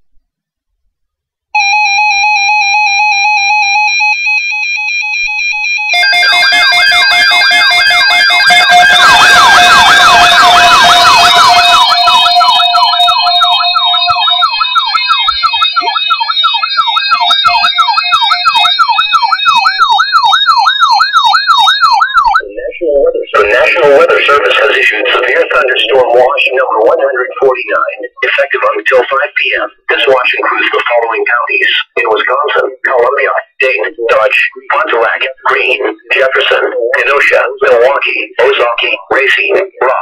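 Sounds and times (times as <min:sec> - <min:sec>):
siren-like alarm: 0:01.6 - 0:29.0
high electronic alert tone beeping: 0:04.8 - 0:28.4.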